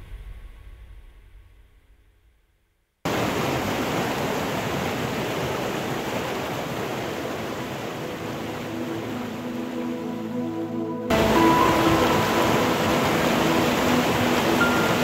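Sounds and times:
music: 8.2 - 15.0
water gushing into channel: 11.1 - 15.0.

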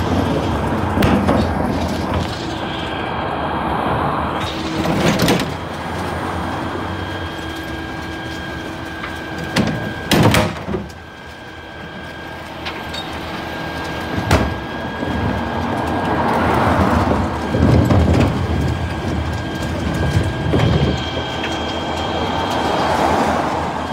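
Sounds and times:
bins banging against lift: 0.0 - 2.6, 7.0 - 11.1, 11.9 - 23.4
rushing rumbling of bins tipped: 0.0 - 2.8, 4.4 - 23.7
truck bin lift whining: 0.0 - 23.9.

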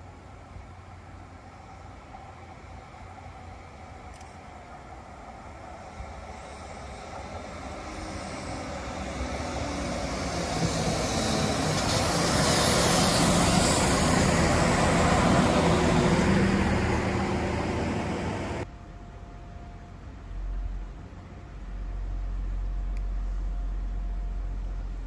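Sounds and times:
train wheels on rails: 0.0 - 18.7
diesel train engine: 0.0 - 25.0.

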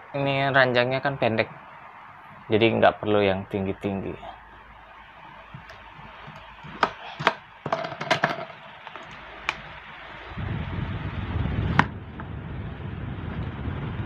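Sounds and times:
plastic knocks and clicks: 5.5 - 9.6
steady low rumble: 8.6 - 14.0.

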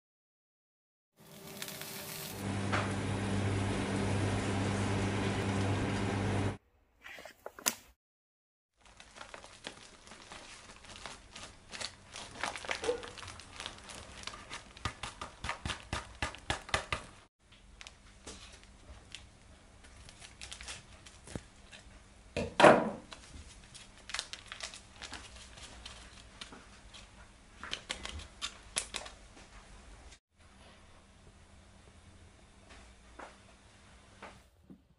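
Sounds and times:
handling sounds at a steel bowl: 1.2 - 2.4, 7.0 - 7.9
plastic bag crinkling: 1.2 - 2.4, 8.8 - 15.2, 17.8 - 21.8, 23.1 - 26.5.

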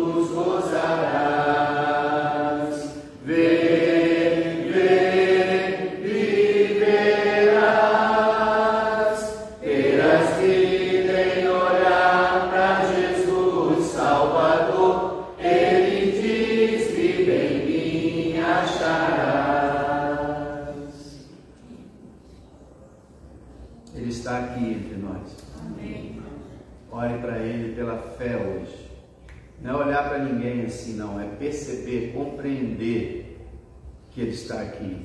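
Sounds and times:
man singing a hymn unaccompanied: 0.0 - 21.2.

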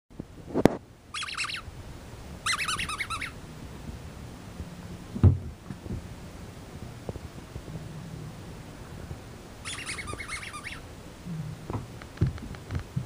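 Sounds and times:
squeaky dog toy squeaking: 1.1 - 1.6, 2.4 - 3.4, 9.6 - 10.8
dull thump: 5.2 - 6.0.

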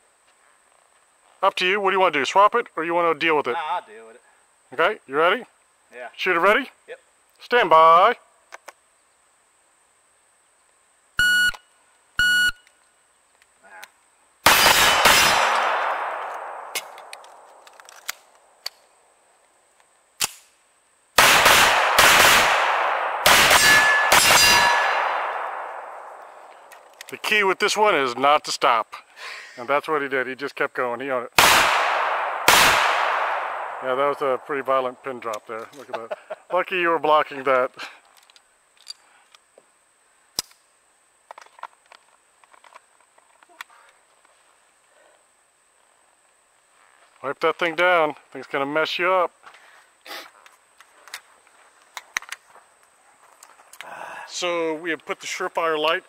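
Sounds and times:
pistol shots: 14.4 - 17.6, 21.2 - 26.4, 31.4 - 34.6
handgun click: 15.6 - 18.8
steel targets ringing: 23.2 - 25.2
light clicks and rustles: 38.0 - 39.7, 41.2 - 44.6, 49.4 - 53.9.

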